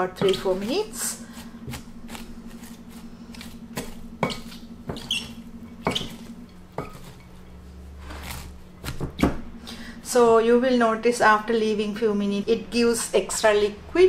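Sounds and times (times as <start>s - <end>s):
vegetables rustling in a bowl: 0.0s - 9.1s.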